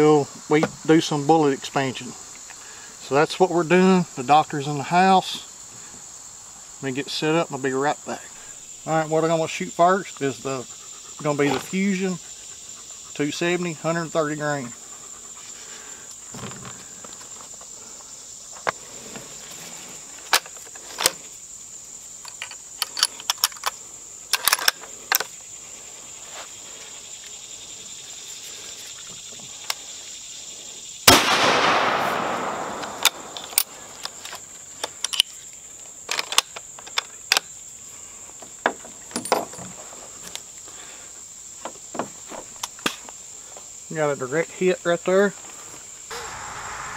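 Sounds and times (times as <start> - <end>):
small clicks and knocks: 22.2 - 25.3, 32.8 - 35.4, 36.1 - 37.5
rifle shot: 31.1 - 33.9, 46.1 - 46.9
high-pitched hum: 46.1 - 46.9.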